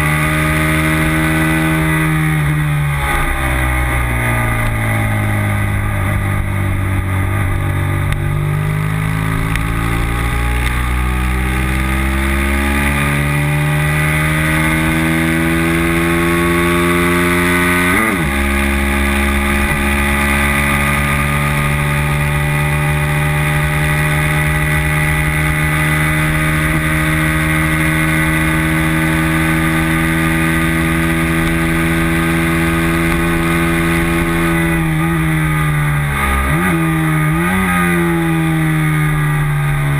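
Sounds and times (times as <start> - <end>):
racing motorcycle engine: 0.0 - 39.9.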